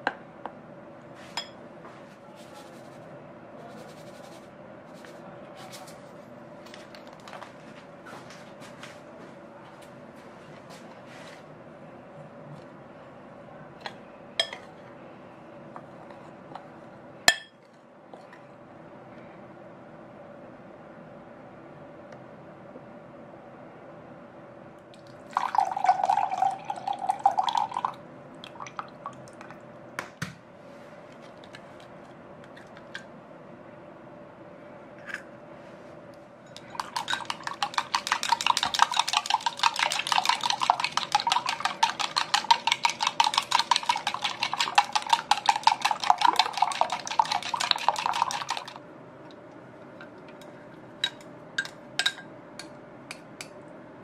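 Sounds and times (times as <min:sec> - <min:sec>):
whisk clicking against glass: 0:36.6 - 0:48.7.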